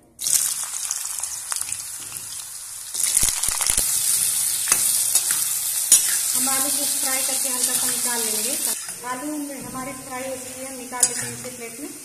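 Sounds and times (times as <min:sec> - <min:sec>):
potatoes sizzling in hot oil: 0:00.2 - 0:12.0
metal spatula scraping: 0:04.7 - 0:06.4, 0:07.6 - 0:11.7.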